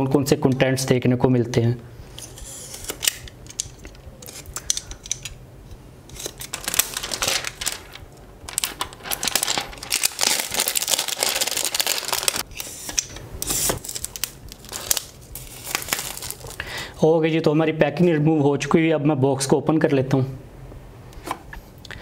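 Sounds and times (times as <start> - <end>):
plastic shrink wrap crinkling and tearing: 6.1 - 16.8.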